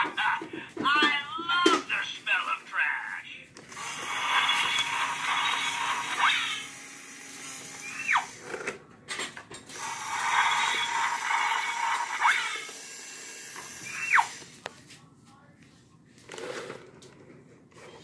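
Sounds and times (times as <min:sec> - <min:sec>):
toy truck grinding whirring noise: 0:03.7 - 0:08.8, 0:09.7 - 0:14.5.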